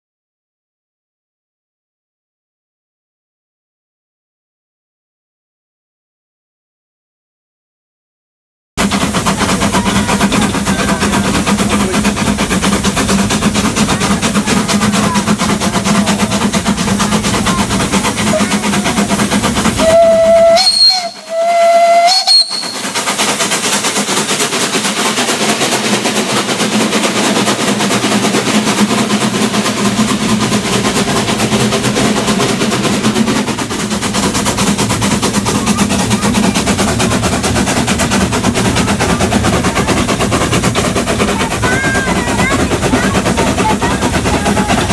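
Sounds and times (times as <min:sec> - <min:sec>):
steam locomotive rattling beat: 0:08.8 - 0:44.9
steam whistle blasts: 0:19.8 - 0:22.9.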